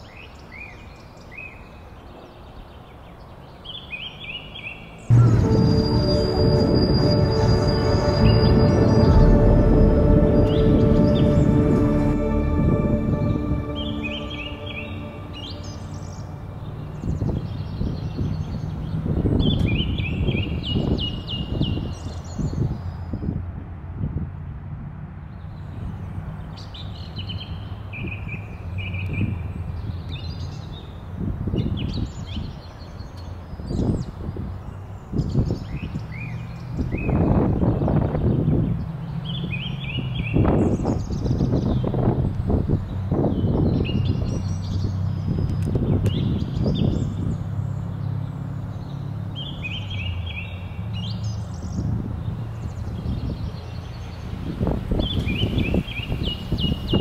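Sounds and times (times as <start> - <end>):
small birds chirping: 31.6 - 57.0.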